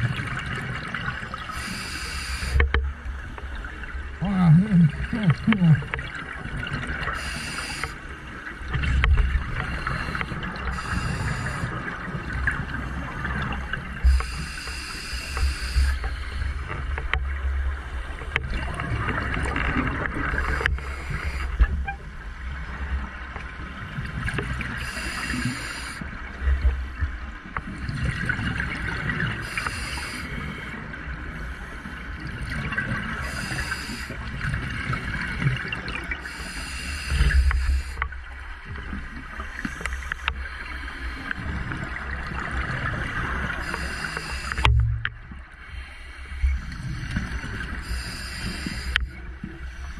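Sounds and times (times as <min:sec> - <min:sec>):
regulator breathing hiss: 0:01.5 - 0:02.6, 0:07.2 - 0:08.0, 0:09.7 - 0:11.8, 0:14.0 - 0:16.6, 0:20.5 - 0:21.6, 0:24.8 - 0:26.0, 0:29.4 - 0:30.8, 0:33.2 - 0:34.2, 0:36.2 - 0:38.0, 0:43.6 - 0:44.7, 0:47.8 - 0:49.9.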